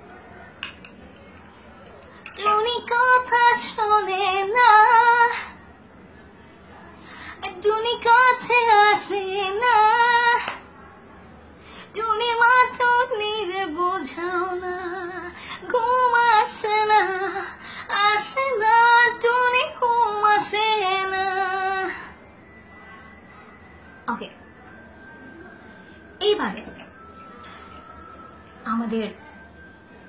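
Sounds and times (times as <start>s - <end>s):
woman singing unaccompanied: 2.3s - 5.6s, 7.4s - 10.6s, 11.9s - 22.2s.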